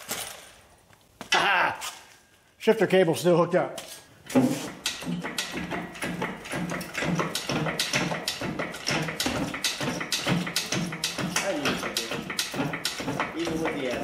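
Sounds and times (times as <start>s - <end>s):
quick irregular clicks and taps: 4.7s - 13.8s.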